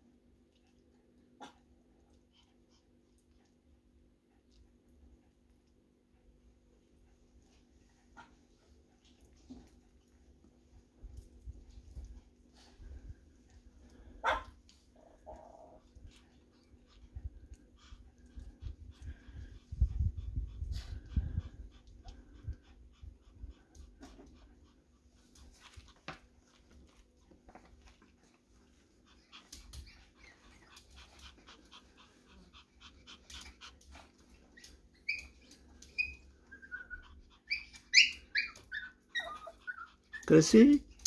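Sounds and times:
dog whimpering: 35.0 - 40.8.

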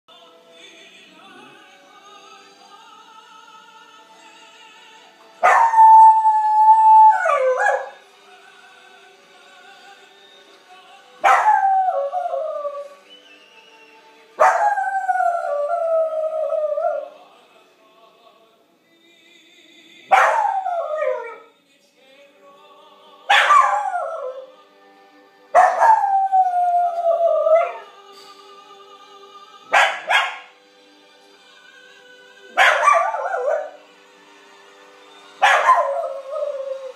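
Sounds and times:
opera music playing faintly: 0.1 - 36.9
dog howling: 25.6 - 27.9.

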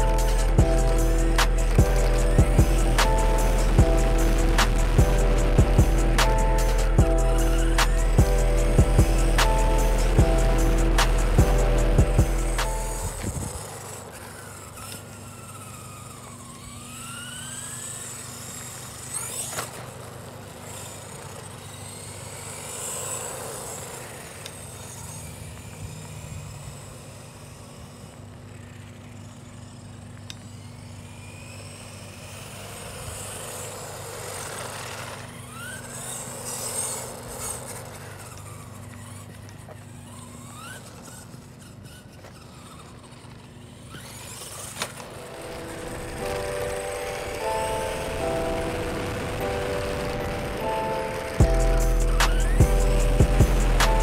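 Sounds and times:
steady low hum: 0.0 - 19.1, 44.5 - 54.0
electric motor whining: 0.0 - 54.0
tyre noise on pavement: 32.7 - 54.0.

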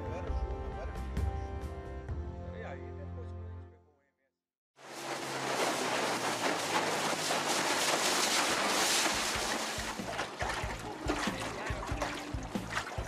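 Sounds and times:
boat engine hum: 4.8 - 13.0
water along hull: 4.8 - 13.0.

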